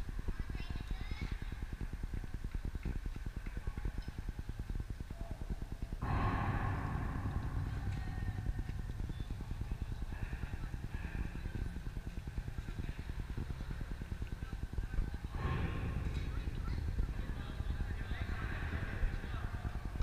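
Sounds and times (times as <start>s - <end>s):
wind buffeting microphone: 4.2s - 20.0s
burst of broad noise: 6.0s - 11.6s.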